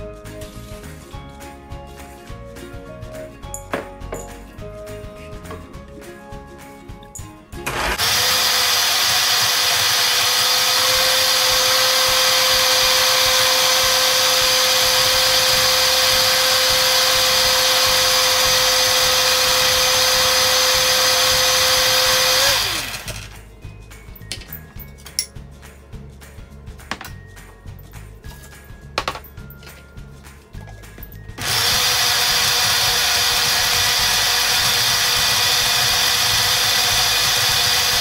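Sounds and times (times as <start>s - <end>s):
blender motor whirring: 7.6s - 23.4s, 31.4s - 38.0s.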